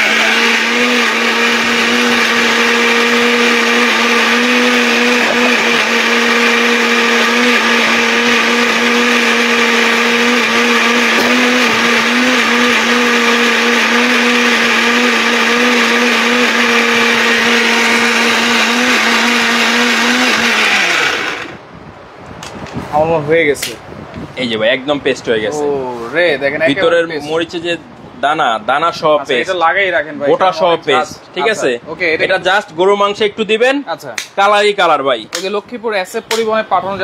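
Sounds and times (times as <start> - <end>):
mixer grinder motor running: 0.0 - 21.7.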